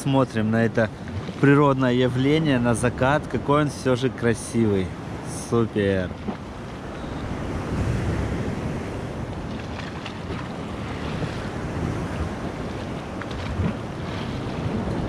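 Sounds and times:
waves washing against breakwater: 0.0s - 15.0s
wind buffeting microphone: 4.6s - 15.0s.

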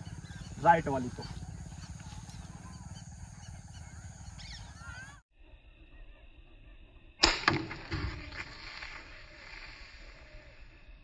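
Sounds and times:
low outdoor rumble: 0.0s - 5.7s
faint bird chirps: 0.0s - 7.2s, 9.1s - 11.0s
air rifle shots: 7.2s - 9.7s.

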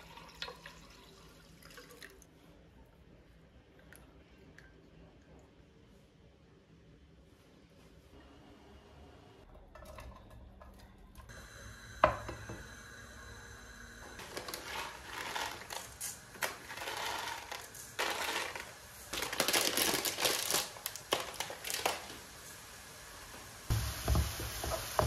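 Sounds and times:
rice rattling on metal mesh: 14.2s - 22.1s
plastic bag crinkling: 14.2s - 22.3s.

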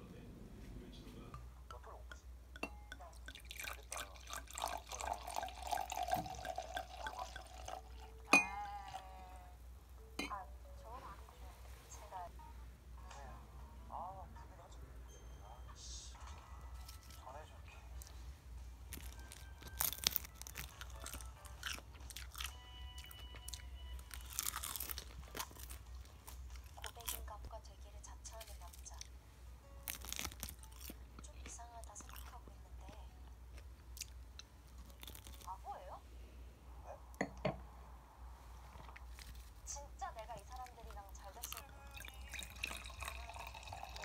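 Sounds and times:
glass ringing tone: 2.1s - 9.2s, 10.2s - 10.4s
wine pouring with glugs: 3.2s - 8.5s, 41.9s - 44.0s
seaweed sheets crackling and crunching: 18.9s - 22.4s, 23.1s - 27.3s, 29.8s - 31.0s, 34.8s - 35.5s.

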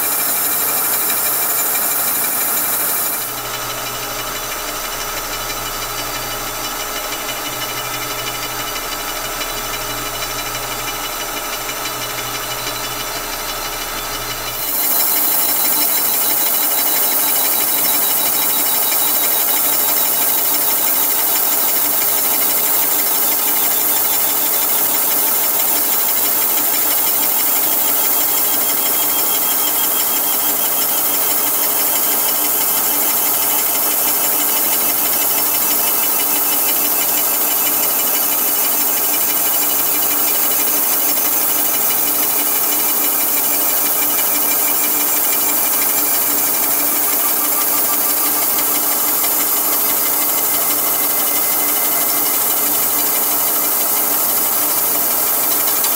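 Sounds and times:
milling saw cutting metal: 14.5s - 24.8s, 43.0s - 55.9s.

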